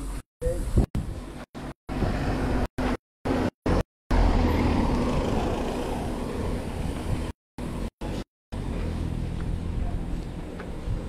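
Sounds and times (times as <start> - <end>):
car passing by: 3.4 - 7.3.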